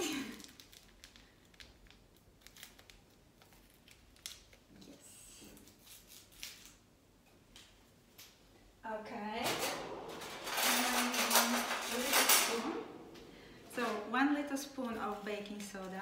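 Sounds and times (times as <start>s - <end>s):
paper sachet crinkling: 0.1s - 4.7s.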